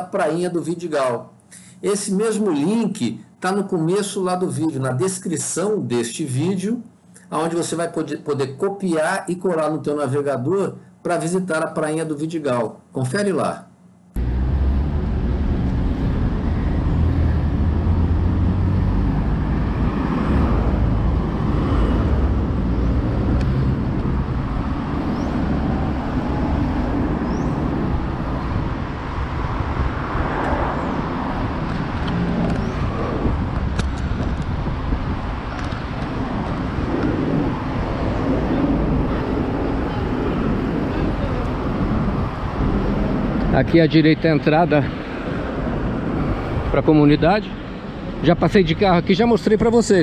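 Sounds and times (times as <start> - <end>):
road traffic passing: 0.0 - 5.7, 13.8 - 50.0
wind rumble on microphone: 14.2 - 50.0.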